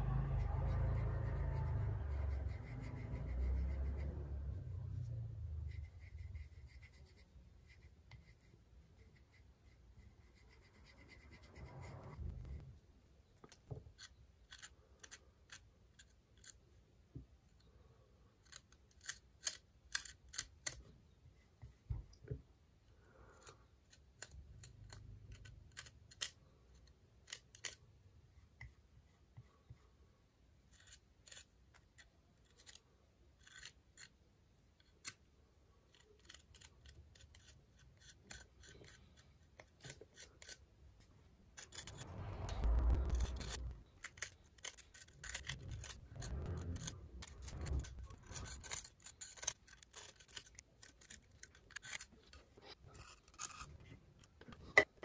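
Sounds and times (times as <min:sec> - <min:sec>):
rubbing and handling noise: 0:35.8 - 0:55.0
spatula scraping ceramic: 0:43.0 - 0:53.9.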